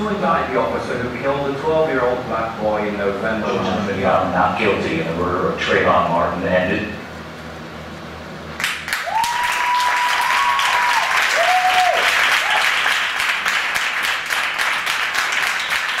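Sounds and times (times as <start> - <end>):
audience clapping: 8.6 - 16.0
long cheering whistles: 9.0 - 12.8.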